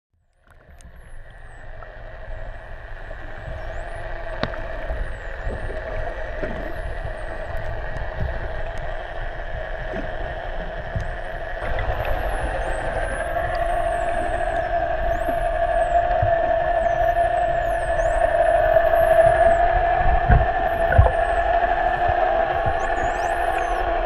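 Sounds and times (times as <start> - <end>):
underwater hum and rumble: 0.2 - 24.0
dolphins whistling: 11.0 - 24.0.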